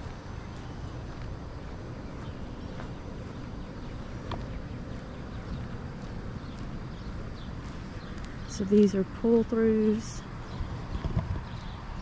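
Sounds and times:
footsteps on pavement: 0.0s - 12.0s
faint bird chirp: 0.3s - 12.0s
low rumble on microphone: 10.2s - 12.0s.

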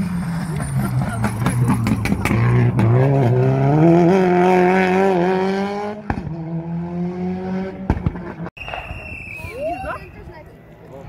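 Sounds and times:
rally car engine revving: 0.0s - 8.5s.

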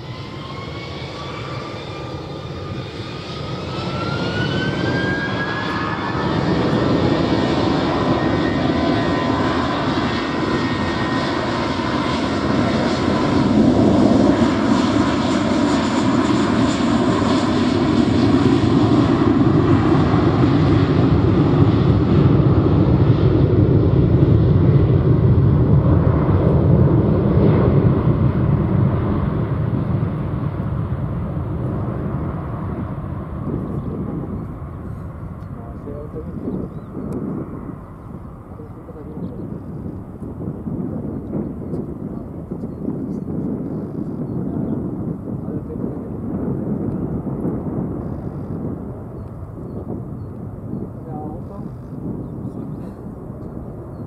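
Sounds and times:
jet engines spooling up: 0.0s - 15.3s
jet take-off roar: 0.0s - 54.0s.

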